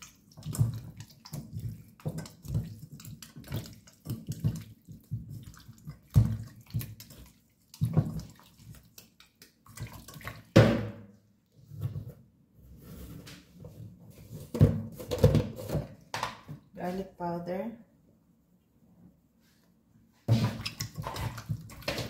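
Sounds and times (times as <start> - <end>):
hands squishing chicken in marinade: 0.0 - 10.6, 20.3 - 22.0.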